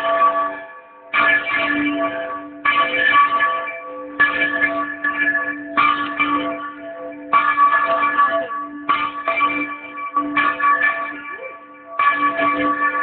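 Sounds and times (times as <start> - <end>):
church bells clanging: 0.0 - 13.0.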